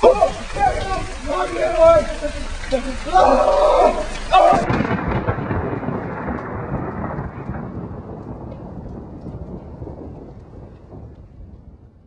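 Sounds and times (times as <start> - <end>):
low dense noise: 0.0 - 5.2.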